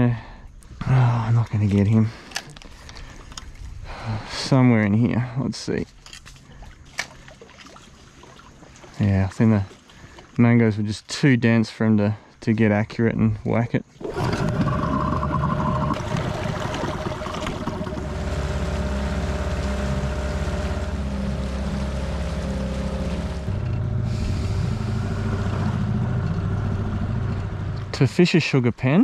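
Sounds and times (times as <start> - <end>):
water rushing past hull: 13.9 - 27.2
outboard motor running: 14.0 - 28.1.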